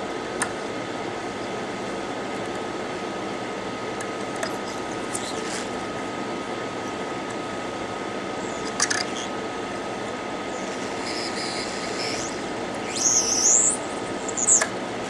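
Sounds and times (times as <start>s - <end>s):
faint steady hum: 0.0s - 15.0s
hot air station blowing: 4.6s - 15.0s
high squeal: 10.5s - 14.7s.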